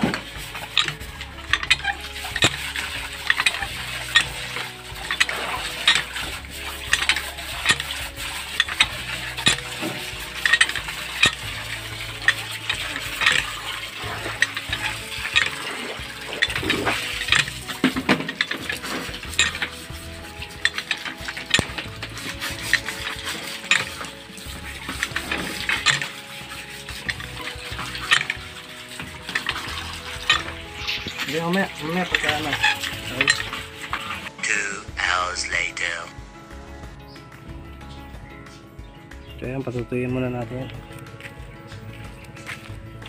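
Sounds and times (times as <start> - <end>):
brush scrubbing wire mesh: 0.0 - 34.3
water splashing: 0.0 - 36.5.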